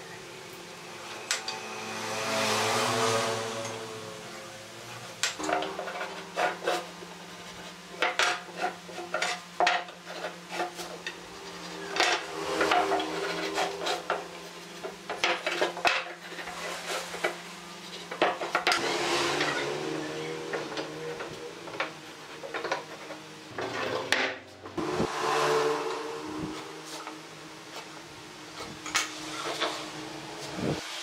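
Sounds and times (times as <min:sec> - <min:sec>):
marking gauge scratching wood: 0:05.4 - 0:23.9.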